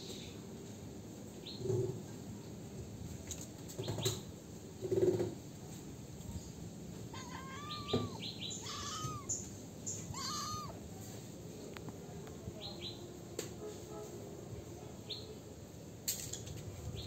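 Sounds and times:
birds chirping: 7.1 - 10.8
kitten meowing: 7.1 - 10.8.

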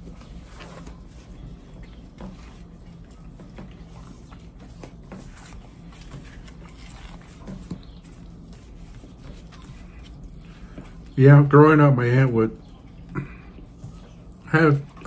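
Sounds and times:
people chewing: 0.0 - 11.2, 12.6 - 15.0.

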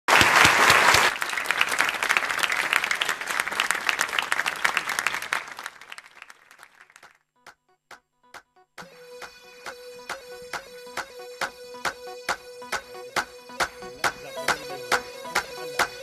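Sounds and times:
studio audience applauding: 0.1 - 7.2.

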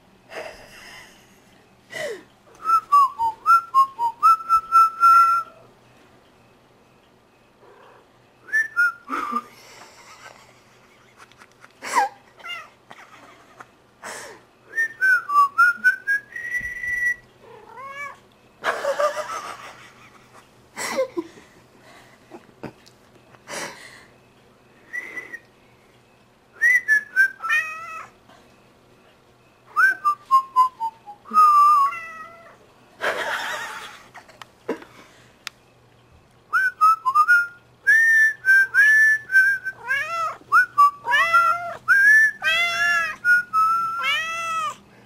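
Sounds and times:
person whistling: 2.6 - 5.6, 14.7 - 17.2, 24.9 - 25.5, 29.8 - 31.9, 36.6 - 39.9, 40.5 - 42.6, 43.2 - 44.2
cat meowing: 17.4 - 18.2, 31.8 - 32.6, 39.8 - 40.4, 41.0 - 41.8, 42.4 - 44.8.

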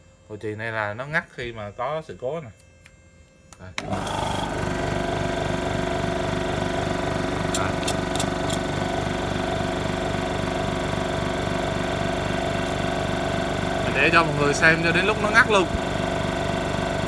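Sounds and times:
air compressor running: 3.8 - 17.0.

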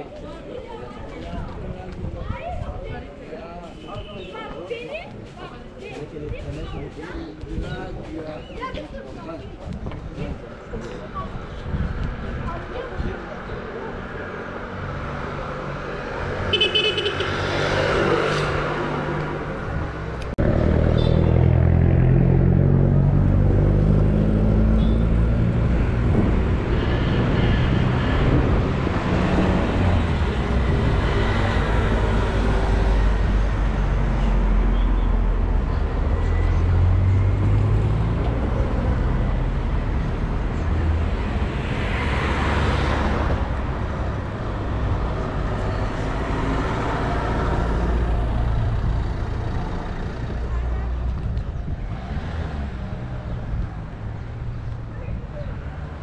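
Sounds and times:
cars rumbling along a street: 0.0 - 56.0
vehicle passing close: 14.7 - 56.0.

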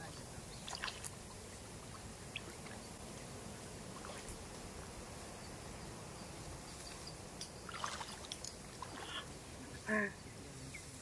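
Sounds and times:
low outdoor background noise: 0.0 - 11.0.

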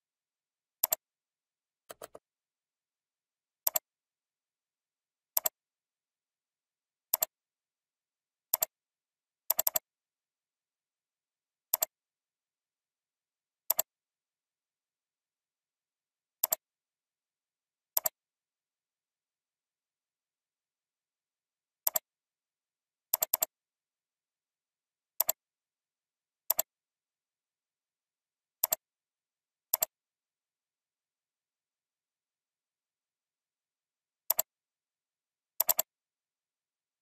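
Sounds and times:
computer mouse clicks: 0.8 - 1.0, 1.9 - 2.3, 3.6 - 3.9, 5.3 - 5.6, 7.1 - 7.4, 8.5 - 8.8, 9.5 - 9.8, 11.7 - 12.0, 13.7 - 13.9, 16.4 - 16.6, 18.0 - 18.2, 21.8 - 22.1, 23.2 - 23.6, 25.2 - 25.4, 26.5 - 26.7, 28.6 - 28.8, 29.7 - 30.0, 34.3 - 34.5, 35.6 - 35.9.

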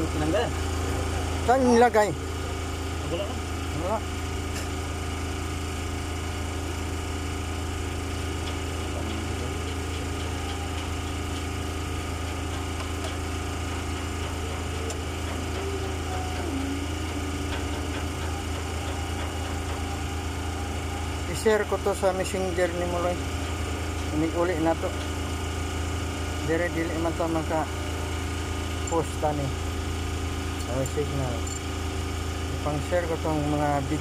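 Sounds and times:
engine idling: 0.0 - 34.0.

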